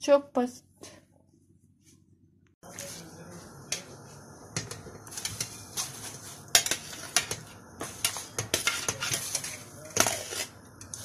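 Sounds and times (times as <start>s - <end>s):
kitchen utensils clinking: 4.6s - 11.0s.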